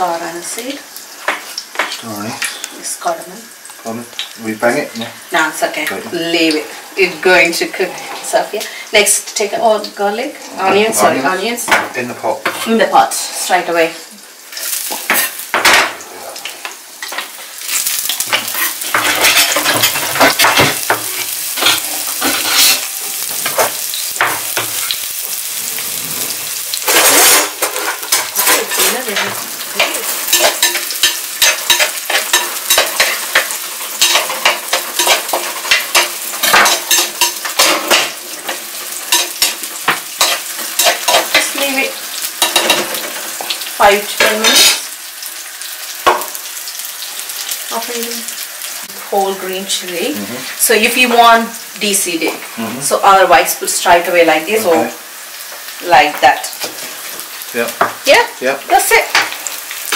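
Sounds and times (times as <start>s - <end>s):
onion frying in hot oil: 0.0s - 59.9s
metal spoon scraping clay pot: 26.0s - 39.5s.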